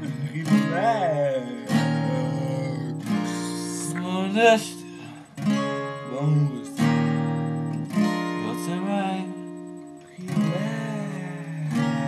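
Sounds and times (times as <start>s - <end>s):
men singing: 0.0s - 5.0s
acoustic guitar strumming: 0.0s - 12.0s.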